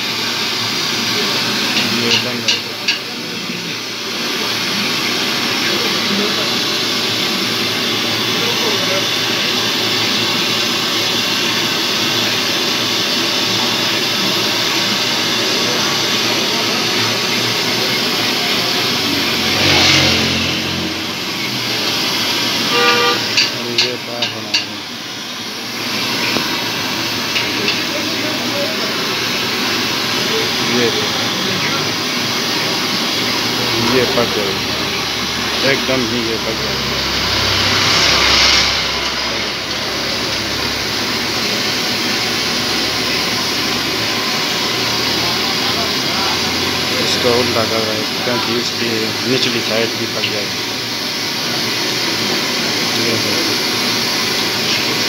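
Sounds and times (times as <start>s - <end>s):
batter sizzling in hot oil: 0.0s - 55.0s
brief horn-like tone: 22.7s - 23.4s.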